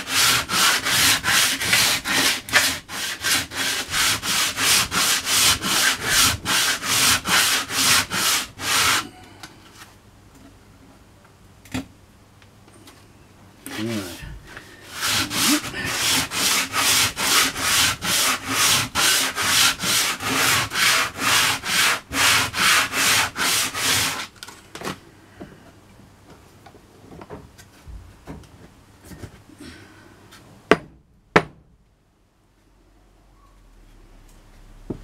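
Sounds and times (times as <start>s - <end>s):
sandpaper rubbing on wood: 0.0s - 9.1s, 14.8s - 24.3s
sharp knocks: 30.7s - 31.7s.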